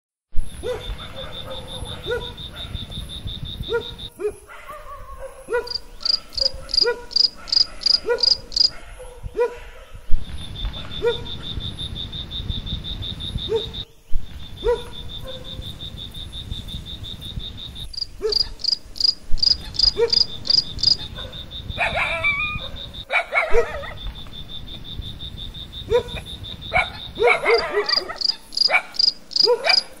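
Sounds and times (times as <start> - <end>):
insects trilling: 0.4 - 9.4, 10.2 - 30.0
sharp insect chirps: 5.5 - 8.8, 10.2 - 23.1, 23.8 - 30.0.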